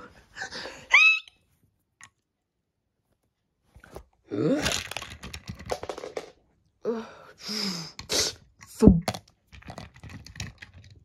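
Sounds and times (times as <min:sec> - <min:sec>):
cartoon high squeak: 0:00.9 - 0:01.4.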